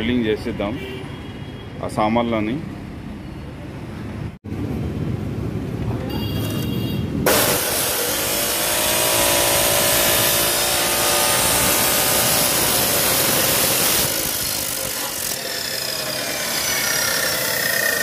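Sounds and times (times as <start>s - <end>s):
cut-off saw grinding steel: 7.3s - 18.0s.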